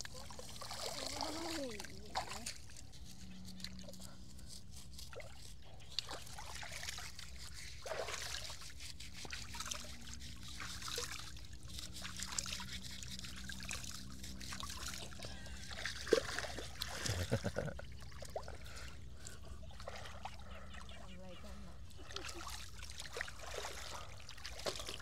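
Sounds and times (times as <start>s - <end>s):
water drips and splashes: 0.0s - 2.8s, 5.9s - 17.1s, 22.0s - 25.0s.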